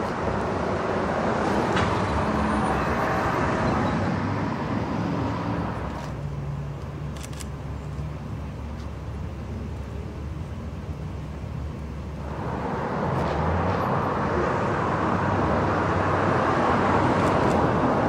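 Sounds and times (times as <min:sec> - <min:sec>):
distant traffic rumble: 0:00.0 - 0:18.0
vehicle passing: 0:12.2 - 0:18.0.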